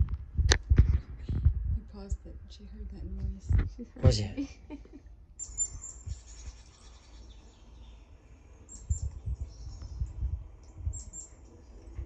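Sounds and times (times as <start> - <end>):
dull low thumps: 0.0 - 4.5, 8.8 - 11.2
small birds chirping: 5.3 - 12.0.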